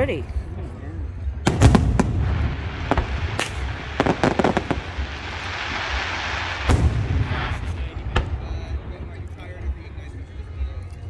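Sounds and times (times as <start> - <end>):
fireworks bangs and pops: 1.4 - 9.4
fireworks hiss: 1.7 - 8.2.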